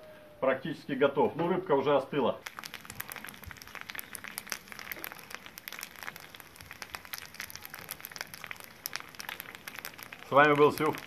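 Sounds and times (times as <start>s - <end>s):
food sizzling on grill: 2.4s - 11.0s.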